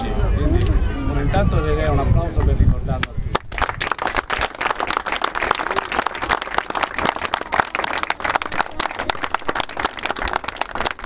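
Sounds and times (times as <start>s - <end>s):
crowd applauding: 3.4s - 11.0s.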